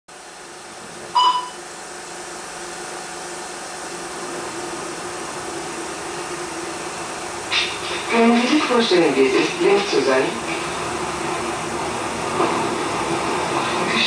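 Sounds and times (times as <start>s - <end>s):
film soundtrack hiss and hum: 0.1s - 14.0s
short high beep: 1.2s - 1.6s.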